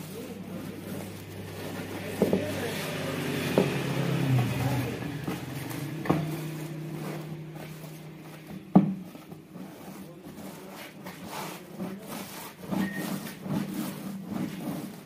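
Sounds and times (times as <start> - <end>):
vehicle engine humming: 0.0 - 9.8
rolling pin knocks: 8.4 - 9.4.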